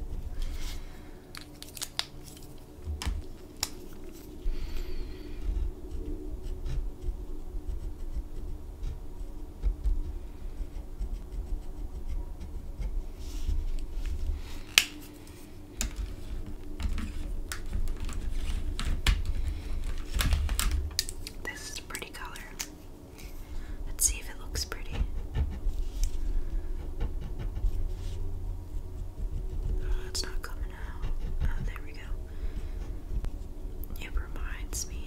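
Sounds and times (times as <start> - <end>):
low handling rumble: 2.4 - 35.0
pen scratching on paper: 5.4 - 13.6.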